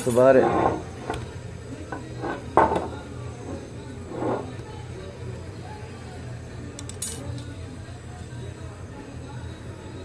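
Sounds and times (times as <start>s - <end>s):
quiet background music: 0.0s - 10.0s.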